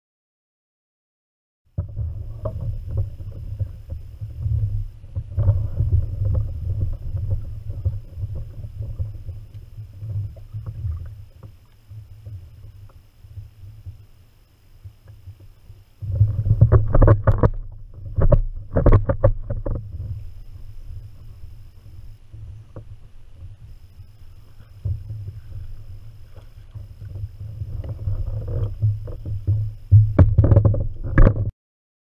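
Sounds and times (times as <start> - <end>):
steady low rumble: 1.8 - 31.2
small knocks and clicks: 16.1 - 20.2, 24.8 - 31.5.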